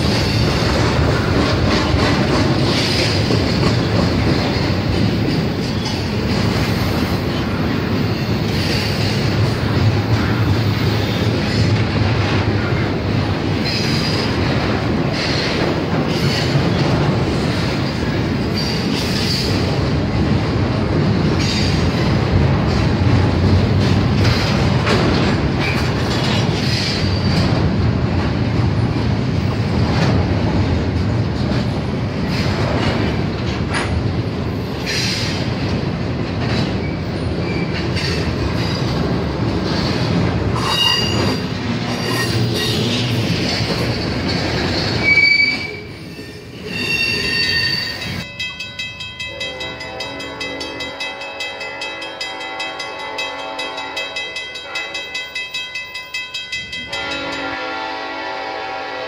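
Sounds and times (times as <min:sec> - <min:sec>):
train wheels rumbling on rails: 0:00.0 - 0:59.0
wheel squeals: 0:40.6 - 0:43.1, 0:44.6 - 0:48.2
crossing bell ringing: 0:46.8 - 0:58.0.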